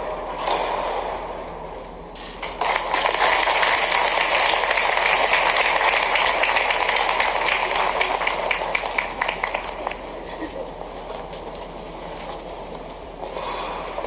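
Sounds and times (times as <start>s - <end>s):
audience clapping: 2.2s - 10.3s.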